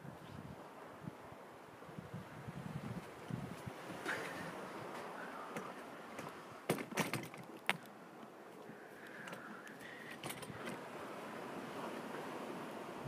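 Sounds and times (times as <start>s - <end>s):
wind hiss: 0.0s - 6.8s, 7.9s - 13.0s.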